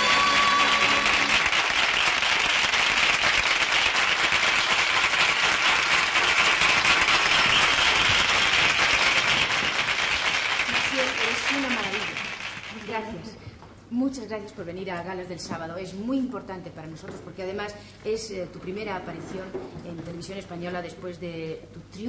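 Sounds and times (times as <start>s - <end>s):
audience applauding: 0.0s - 13.2s.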